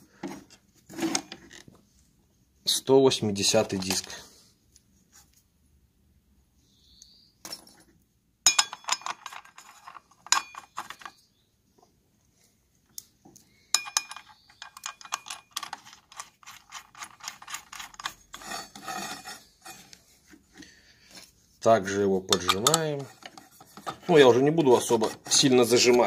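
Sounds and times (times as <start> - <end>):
knocks with metallic ring: 8.5 - 9.0
metal clinking and rattling: 8.5 - 11.2, 13.8 - 19.1.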